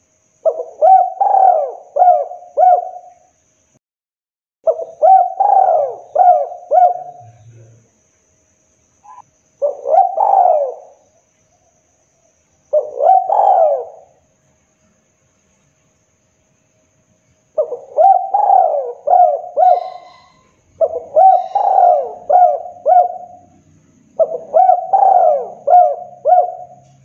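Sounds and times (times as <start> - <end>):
dove cooing: 0.4 - 3.2, 4.7 - 7.7, 9.0 - 11.0, 12.7 - 14.2, 17.6 - 27.0.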